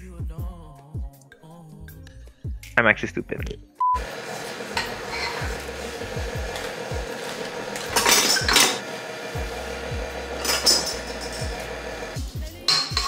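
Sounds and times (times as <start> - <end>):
metal cup clinking against bowl: 4.8 - 5.6, 7.8 - 8.8, 10.4 - 11.7, 12.6 - 13.0.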